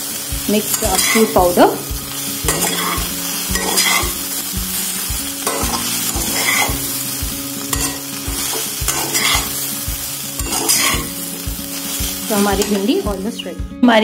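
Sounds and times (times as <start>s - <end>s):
vegetables sizzling in a frying pan: 0.0s - 14.0s
spatula scraping a pan: 2.5s - 4.3s, 5.0s - 7.0s, 7.7s - 9.7s, 10.4s - 11.2s.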